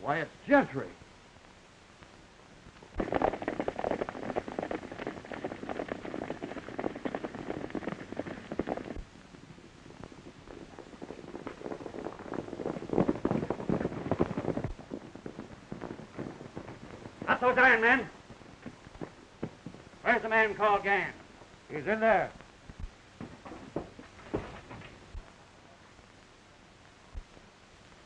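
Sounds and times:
horses galloping hoofbeats: 2.8s - 25.5s.

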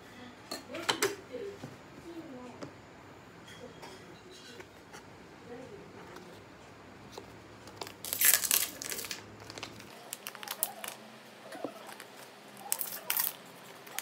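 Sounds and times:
plastic wrapper crackling: 7.6s - 11.1s, 11.8s - 14.0s
plastic wrapper tearing: 7.7s - 11.0s, 11.8s - 14.0s.

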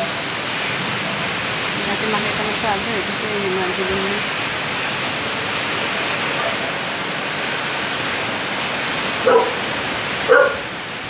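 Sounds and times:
wind and rain rushing: 0.0s - 11.0s
dog barking: 6.3s - 6.8s, 9.2s - 9.7s, 10.3s - 10.7s.

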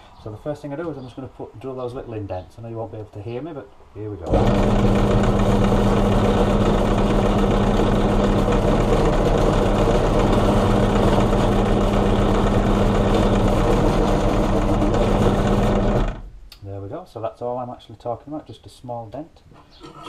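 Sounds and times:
drill bit drilling steel: 4.3s - 16.2s
drill press motor humming: 4.3s - 16.3s.

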